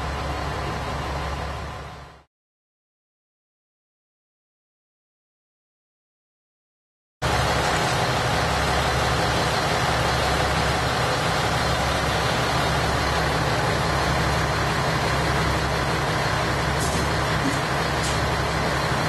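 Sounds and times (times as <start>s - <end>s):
diesel engine idling: 0.0s - 2.3s, 7.2s - 19.0s.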